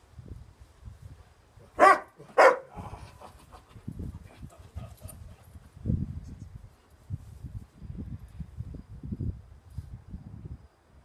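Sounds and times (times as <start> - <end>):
dog barking: 1.8 - 3.0.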